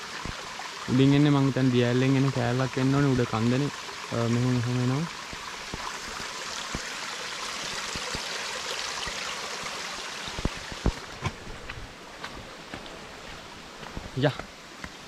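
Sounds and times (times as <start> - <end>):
stream water running: 0.0 - 15.0.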